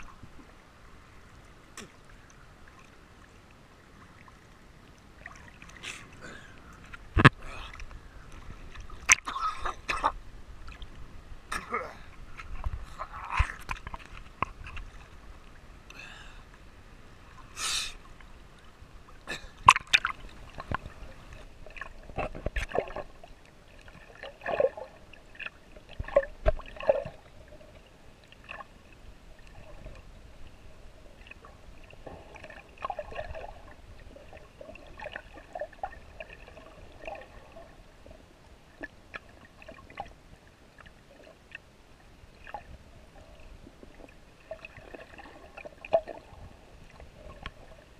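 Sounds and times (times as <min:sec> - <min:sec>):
water gurgling and sloshing: 0:00.0 - 0:47.9
water splashes: 0:00.0 - 0:47.9.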